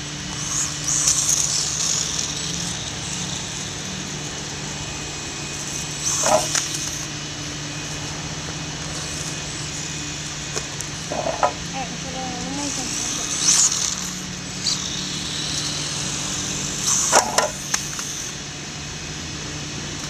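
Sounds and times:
rc truck high whir: 0.0s - 20.0s
rc truck clattering on ramp: 6.1s - 6.8s, 16.8s - 18.2s.

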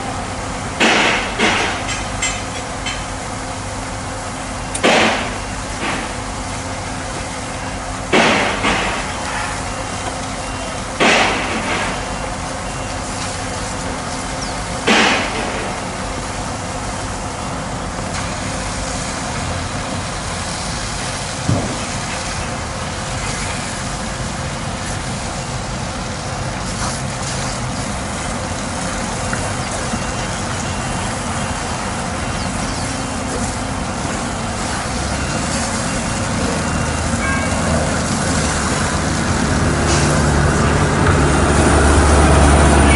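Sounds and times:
truck diesel engine running: 0.0s - 42.9s
water spraying from hose: 0.0s - 42.9s.

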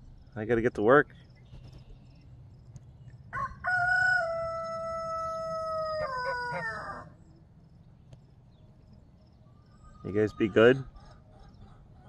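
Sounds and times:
rooster crowing: 3.3s - 7.2s.

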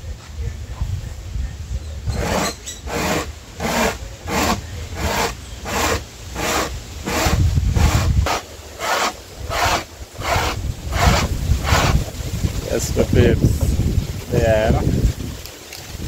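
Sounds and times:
corn scraping on tin grater: 2.1s - 12.1s.

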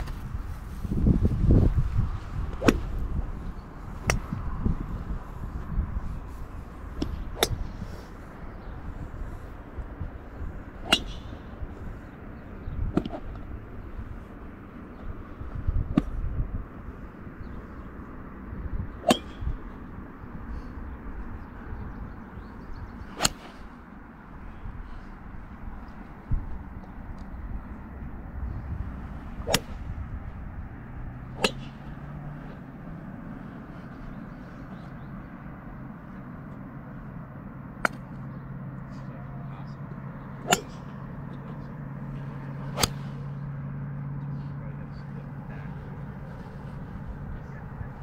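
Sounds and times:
steady low hum: 0.0s - 48.0s
golf clubs striking balls: 2.4s - 8.7s, 9.6s - 20.4s, 22.2s - 24.5s, 25.1s - 34.3s, 37.5s - 39.1s, 39.9s - 43.6s
golf irons clicking on balls: 37.8s - 38.4s.

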